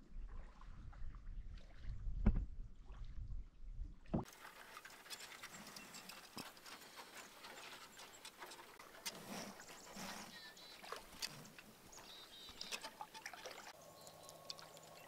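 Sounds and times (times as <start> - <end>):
wind rumble on microphone: 0.0 - 4.2
water splashes: 0.0 - 15.0
paddle strokes in water: 4.2 - 15.0.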